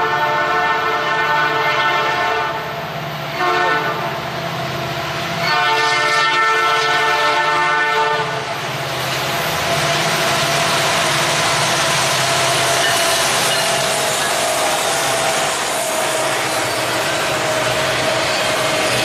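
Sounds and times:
locomotive horn: 0.0s - 2.7s, 3.3s - 4.2s, 5.4s - 8.4s
train wheels on rails: 0.0s - 19.0s
locomotive engine noise: 6.7s - 19.0s.

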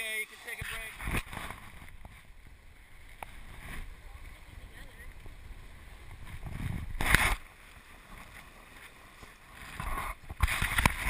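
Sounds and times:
loud water splash: 6.9s - 7.6s.

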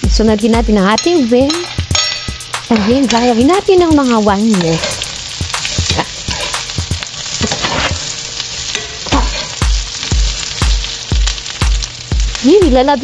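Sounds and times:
vegetables sizzling in frying pan: 0.0s - 13.0s
spatula scraping pan: 1.6s - 3.6s, 4.5s - 9.7s.

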